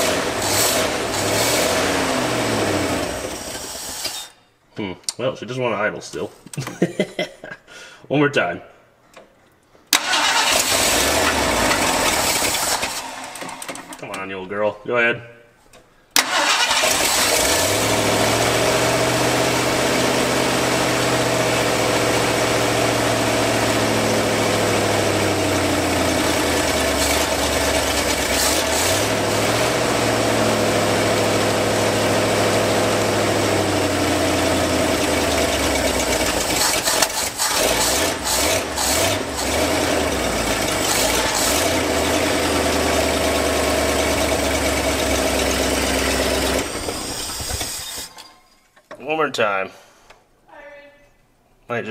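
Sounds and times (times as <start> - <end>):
truck engine running rough: 10.7 - 13.3, 17.3 - 47.8.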